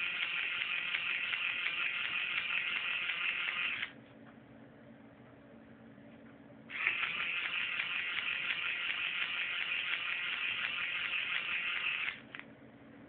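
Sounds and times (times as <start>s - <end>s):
toy motor ratcheting buzz: 0.0s - 3.9s, 6.7s - 12.4s.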